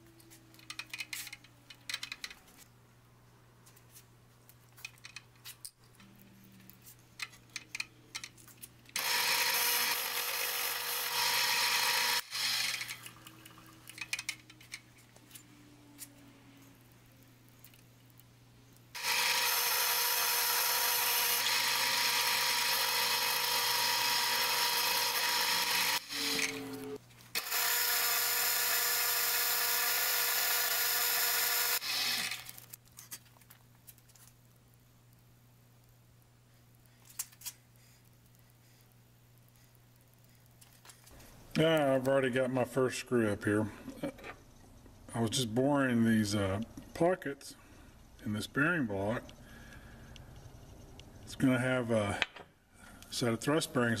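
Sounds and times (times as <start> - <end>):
milling machine spindle whine: 9.0 - 12.8, 19.0 - 32.4.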